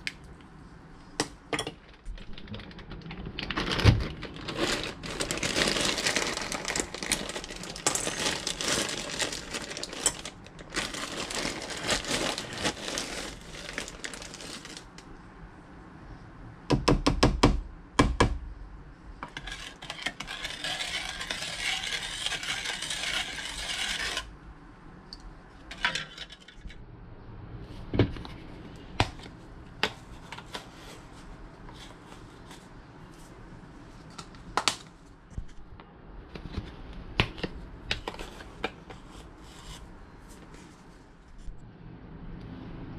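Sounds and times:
plastic bag crinkling: 2.0 - 15.0
measuring cup scraping: 19.2 - 24.3.

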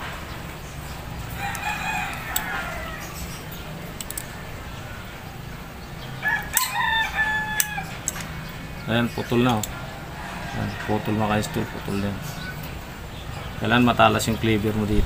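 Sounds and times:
rooster crowing: 1.2 - 4.2, 6.1 - 8.4, 9.8 - 12.6
cleaver clicking: 3.9 - 4.3.

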